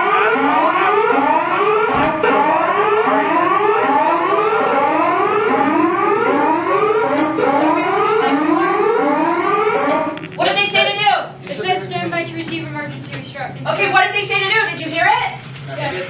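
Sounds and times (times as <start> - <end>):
electronic alarm rising whoops: 0.0 - 10.2.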